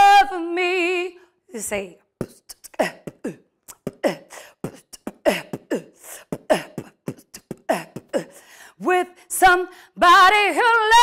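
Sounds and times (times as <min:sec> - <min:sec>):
a cappella singing: 0:00.0 - 0:11.0
mouth clicks: 0:02.2 - 0:04.0
vocal percussion: 0:02.2 - 0:08.9.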